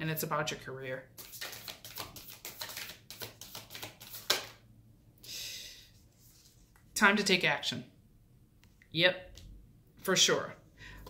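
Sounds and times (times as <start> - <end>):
card snap: 1.2 - 4.6
cards clicking and tapping: 1.2 - 4.6
cards sliding swish: 1.2 - 4.6.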